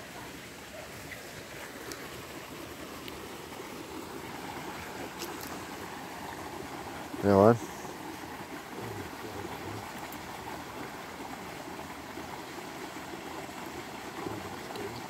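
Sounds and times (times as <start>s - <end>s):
running water rushing: 0.0s - 15.0s.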